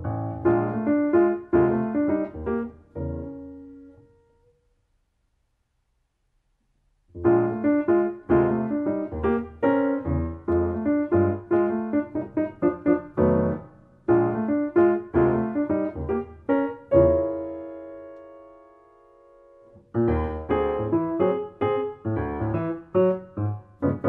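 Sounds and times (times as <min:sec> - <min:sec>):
solo jazz piano chords: 0:00.0 - 0:04.5, 0:07.1 - 0:24.0.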